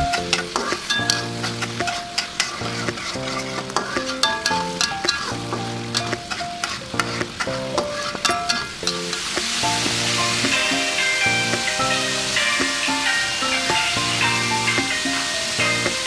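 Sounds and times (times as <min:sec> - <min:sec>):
light instrumental melody: 0:00.0 - 0:16.0
paste sizzling in hot oil: 0:00.0 - 0:16.0
metal spatula scraping wok: 0:00.1 - 0:16.0
spatula clicking against pan: 0:05.9 - 0:09.3.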